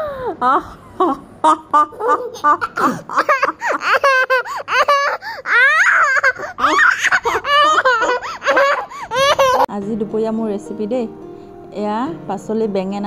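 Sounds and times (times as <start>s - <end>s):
toddler and woman laughing: 0.6s - 9.7s.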